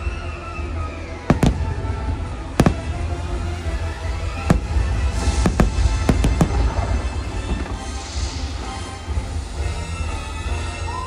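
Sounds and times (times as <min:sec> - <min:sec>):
music: 0:00.0 - 0:11.0
firework bangs: 0:01.3 - 0:09.3
low rumble: 0:01.4 - 0:09.4.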